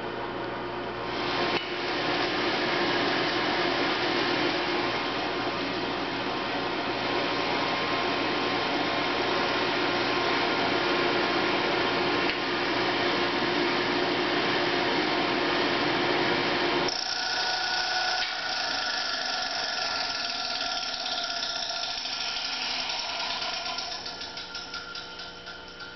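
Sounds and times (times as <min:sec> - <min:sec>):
electric blower whirring whine: 0:15.6 - 0:21.2.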